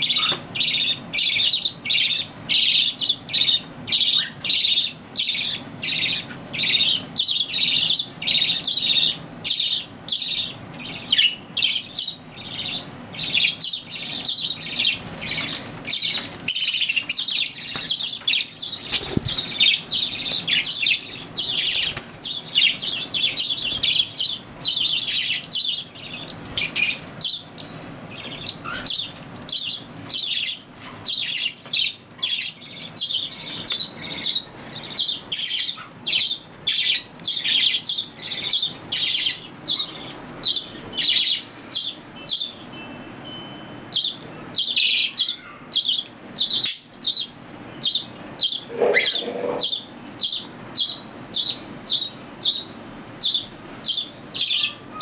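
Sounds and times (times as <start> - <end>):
budgerigars chirping and squawking: 0.0 - 42.6, 43.9 - 55.0.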